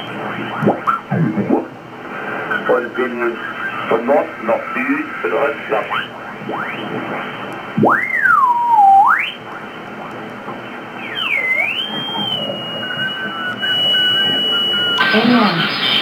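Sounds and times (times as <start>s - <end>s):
radio receiver hiss: 0.0s - 16.0s
gliding whistling carrier tones: 7.9s - 9.7s, 10.6s - 16.0s.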